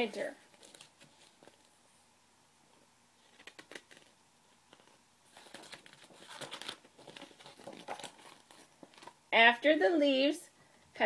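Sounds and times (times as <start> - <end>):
paper page rustling: 0.4 - 1.8, 3.2 - 9.2.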